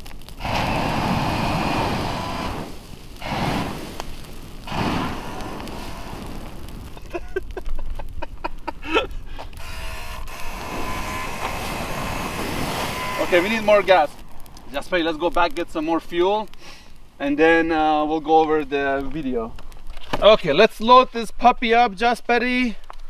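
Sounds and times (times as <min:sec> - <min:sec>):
flamethrower bursts: 0:00.0 - 0:17.2
sharp crackles and clicks: 0:00.0 - 0:23.0.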